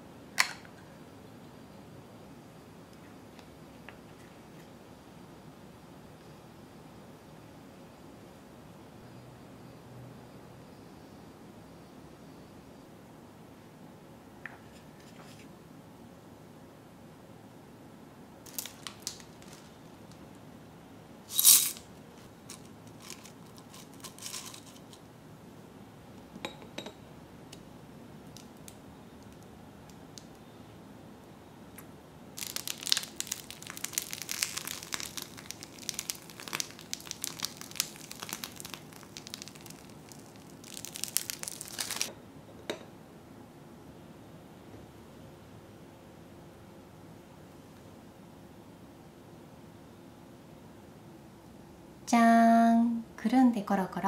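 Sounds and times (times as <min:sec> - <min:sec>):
dense crinkling and crackling: 0:18.4 - 0:20.2, 0:21.3 - 0:25.0, 0:32.4 - 0:42.1
soft clicks and crinkles: 0:21.4 - 0:25.1.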